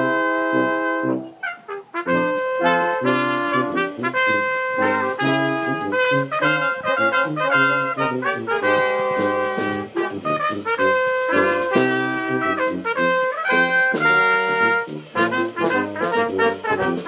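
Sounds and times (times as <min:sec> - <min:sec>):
brass quintet playing theme music: 0:00.0 - 0:17.0
drum kit cymbals: 0:02.0 - 0:17.0.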